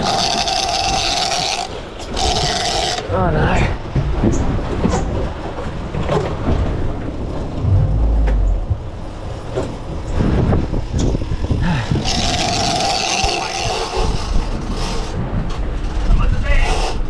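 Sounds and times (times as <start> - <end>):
wind buffeting: 3.8 - 13.0
boat engine running: 5.4 - 13.0.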